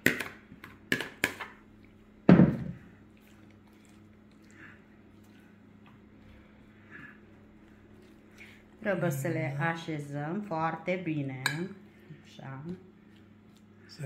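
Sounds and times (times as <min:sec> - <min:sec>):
hands stirring vegetables: 0:00.0 - 0:14.0
plastic bowl thumping on table: 0:02.3 - 0:02.8.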